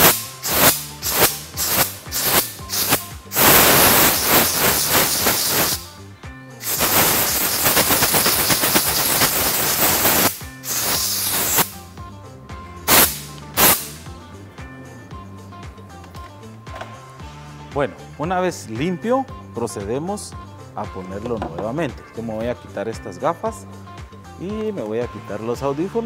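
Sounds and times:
compressed air blow gun blasting: 0.0 - 5.9, 6.6 - 11.8, 12.9 - 14.1
background music with steady beat: 0.0 - 26.0.

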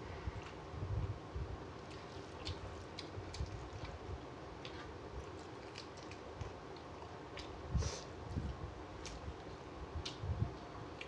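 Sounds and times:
chewing mouth sounds: 1.8 - 7.6.

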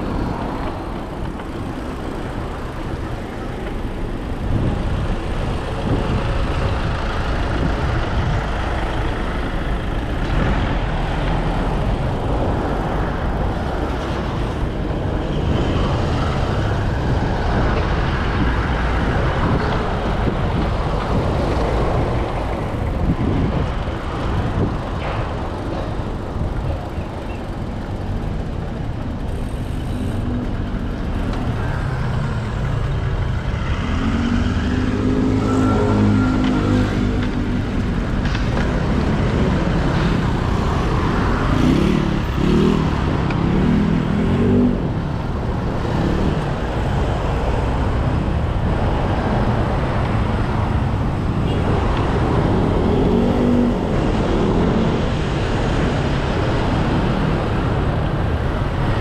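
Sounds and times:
constant low traffic rumble: 0.0 - 59.0
vehicle engines passing: 0.0 - 59.0.

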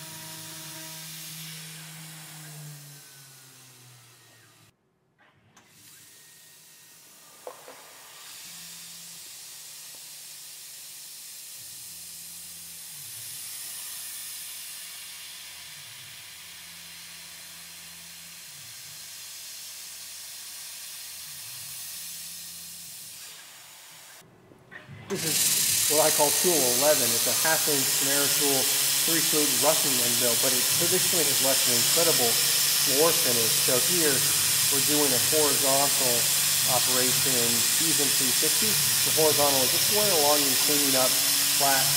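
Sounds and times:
low machine hum: 24.2 - 41.9
mist coolant hissing: 25.1 - 41.9.

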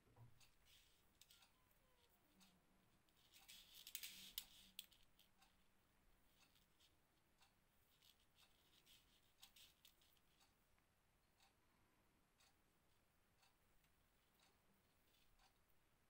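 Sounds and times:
crochet hook clicking: 0.4 - 2.5, 3.1 - 5.6, 7.9 - 10.5
light scratching of thread: 0.4 - 10.7, 12.4 - 15.8.

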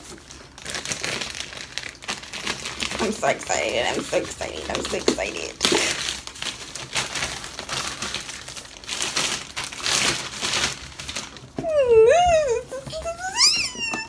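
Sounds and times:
plastic bag rustling and crinkling: 0.0 - 14.0
woman's excited wavering sound: 11.6 - 14.0.

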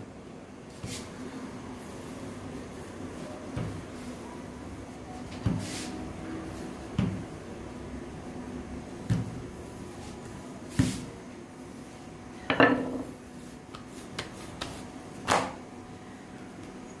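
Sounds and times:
rolling pin knocking on worktop: 12.5 - 13.2
hands pressing dough: 13.0 - 15.6.

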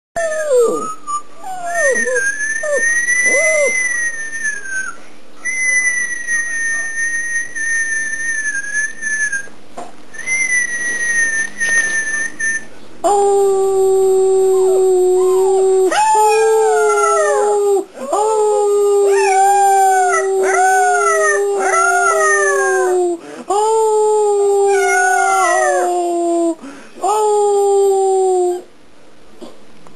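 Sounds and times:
puppy howling: 0.2 - 4.2, 13.1 - 23.2, 24.4 - 28.7.

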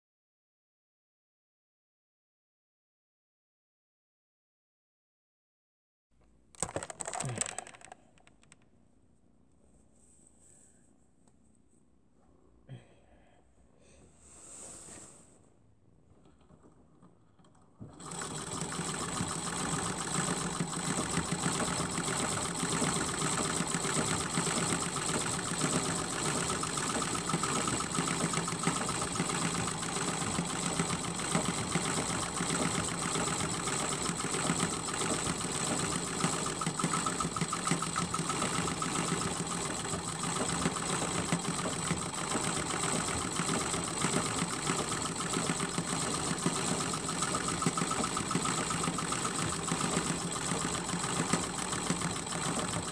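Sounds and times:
sewing machine running: 6.6 - 8.6, 17.8 - 52.9.

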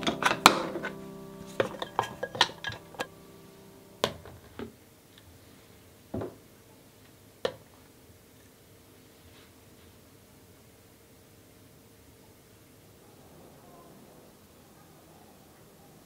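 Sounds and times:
background music: 0.0 - 4.6.

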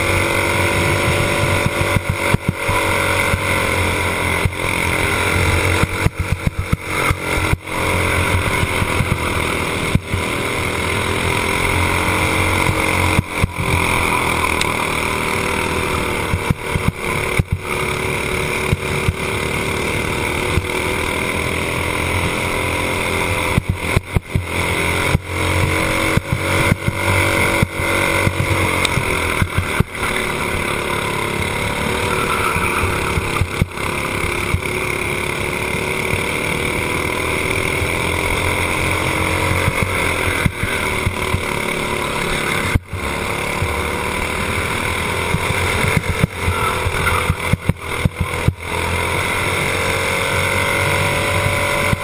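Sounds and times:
kart engine racing: 0.0 - 52.0.

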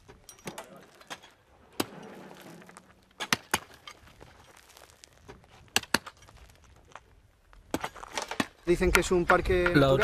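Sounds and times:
pickaxe striking stony earth: 3.1 - 4.0, 4.6 - 6.5, 7.7 - 8.6.

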